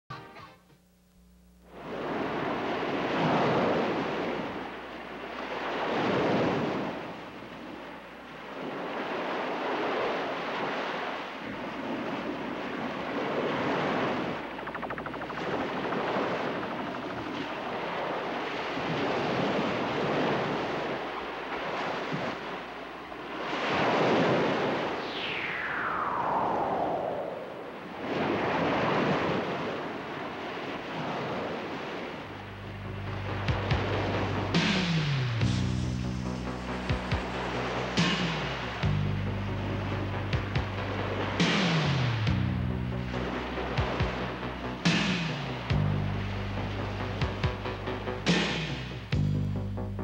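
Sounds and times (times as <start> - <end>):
ocean surf breaking on beach: 1.7 - 34.9.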